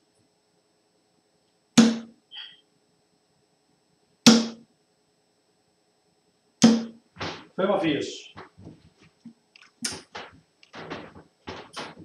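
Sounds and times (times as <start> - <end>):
darts thudding into dartboard: 1.8 - 2.1, 4.3 - 4.6, 6.6 - 7.6.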